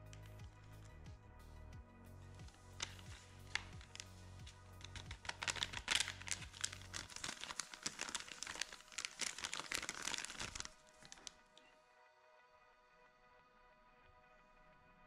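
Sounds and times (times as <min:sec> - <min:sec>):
powder sachets crinkling: 0:02.4 - 0:11.7.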